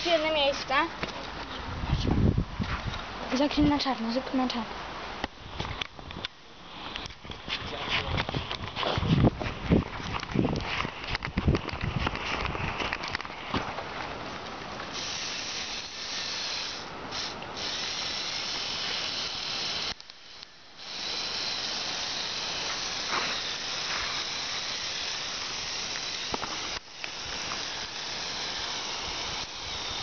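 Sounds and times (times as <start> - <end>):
electric toy motors whirring: 15.0 - 30.0.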